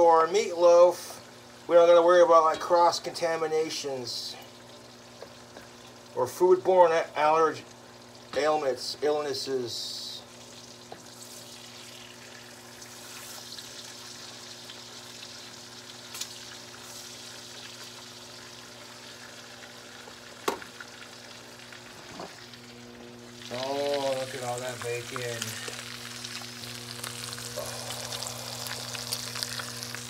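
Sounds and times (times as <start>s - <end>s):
bacon sizzling in a skillet: 0.0s - 30.0s
low hum: 22.5s - 30.0s.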